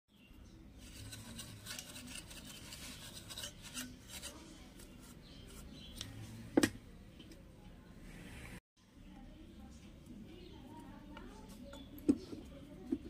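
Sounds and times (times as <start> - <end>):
brush scrubbing metal: 0.8 - 5.7.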